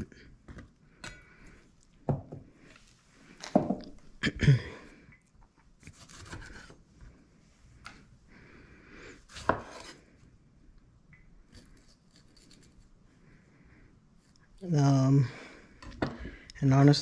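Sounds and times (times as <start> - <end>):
knife slicing tomatoes: 5.8 - 6.8, 9.3 - 10.0
knife scraping board: 9.3 - 10.0.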